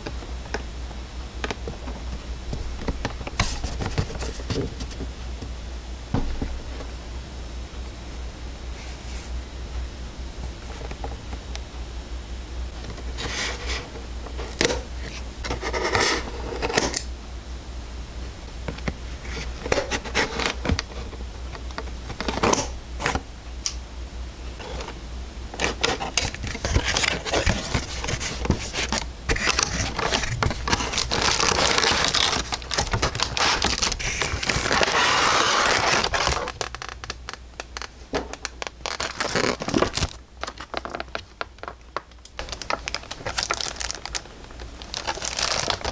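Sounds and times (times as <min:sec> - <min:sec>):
plastic bag rustling and crinkling: 0:03.0 - 0:05.1, 0:25.6 - 0:45.9
cardboard box scraping and clicking: 0:25.6 - 0:36.6.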